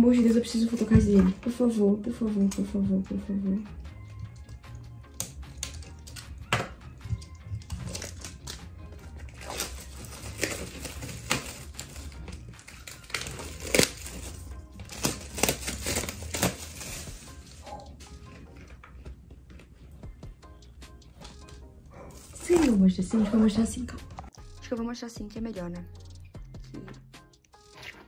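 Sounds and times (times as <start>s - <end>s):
background music: 0.0s - 28.0s
plastic shrink wrap crinkling: 7.6s - 8.6s, 9.2s - 19.0s, 22.2s - 23.3s.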